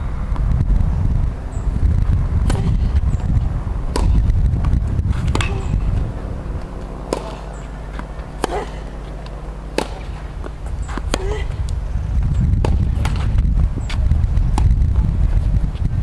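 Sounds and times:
tennis racket hitting ball: 2.4 - 11.8, 12.6 - 14.8.

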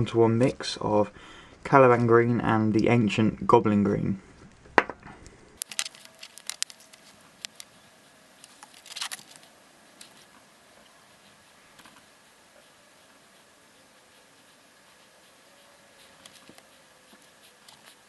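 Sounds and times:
faint room hiss: 0.0 - 18.0
scratchy rustle: 5.8 - 18.0.

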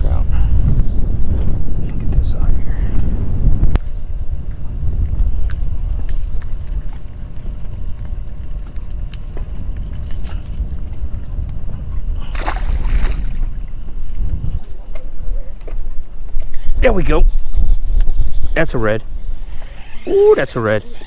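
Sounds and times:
wind rumbling on microphone: 0.0 - 21.0
fish splashing in water: 12.3 - 13.5.

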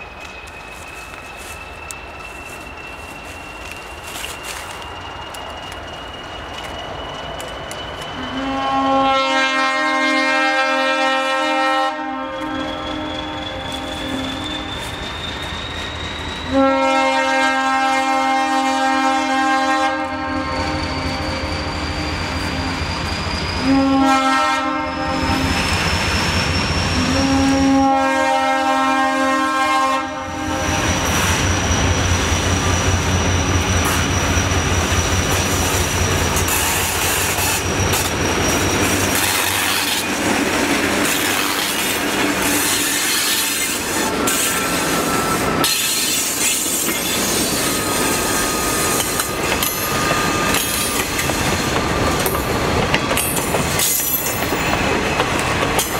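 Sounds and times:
thin high squeal: 0.0 - 8.6, 12.2 - 16.7, 20.3 - 23.9, 30.7 - 40.3, 41.0 - 51.3
locomotive engine rumbling: 0.0 - 55.9
locomotive air horn blasts: 8.2 - 15.0, 16.5 - 21.5, 23.6 - 25.6, 27.0 - 31.0.

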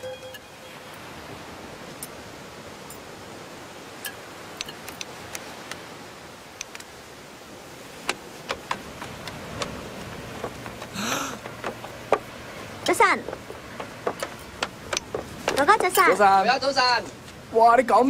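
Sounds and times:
light ticks and taps: 8.0 - 16.2.

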